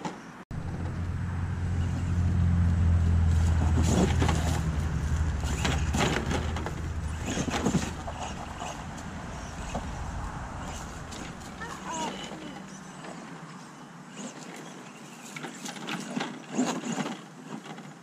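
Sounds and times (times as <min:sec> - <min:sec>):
rc truck electric motor humming: 0:00.6 - 0:18.0
tyres scraping on wood: 0:03.2 - 0:13.3.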